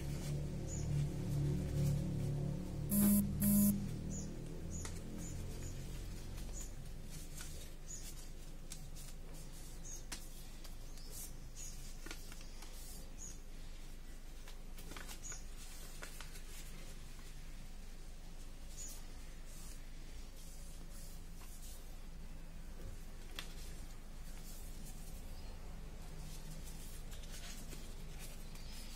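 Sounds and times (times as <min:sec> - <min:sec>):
faint steady hum: 0:02.4 - 0:04.3
paper rustling and crinkling: 0:04.8 - 0:13.2, 0:14.4 - 0:17.4, 0:22.8 - 0:28.9.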